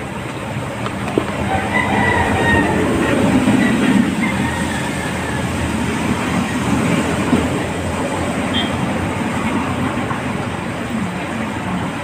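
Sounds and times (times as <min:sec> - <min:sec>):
loud rumbling: 0:00.0 - 0:10.7.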